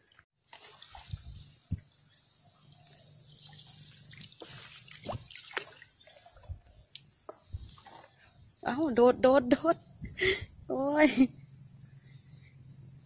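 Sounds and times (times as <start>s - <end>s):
water dripping and plopping: 3.4s - 7.1s.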